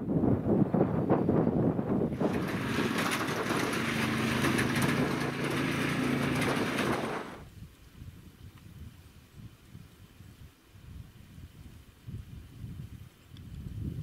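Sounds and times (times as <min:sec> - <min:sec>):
wind buffeting microphone: 0:00.0 - 0:14.0
tyres on stony track: 0:02.1 - 0:07.5
vehicle engine running: 0:02.1 - 0:07.5.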